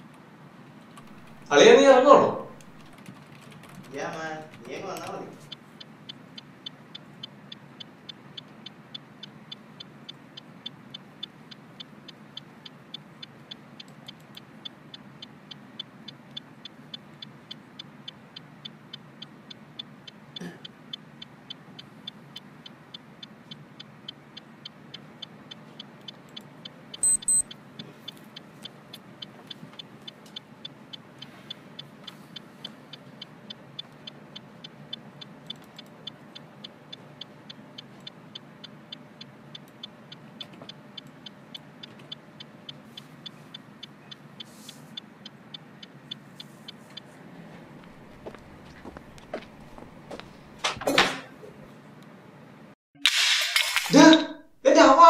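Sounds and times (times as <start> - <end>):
high electronic beeps: 1.0 - 1.7, 27.0 - 27.5
wall clock ticking: 1.0 - 44.4.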